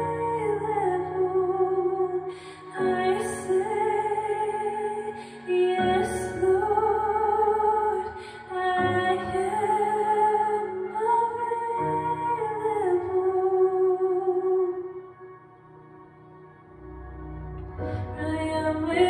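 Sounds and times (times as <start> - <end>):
woman singing gentle melody: 0.0 - 15.0, 18.0 - 19.0
sustained chords: 14.7 - 19.0.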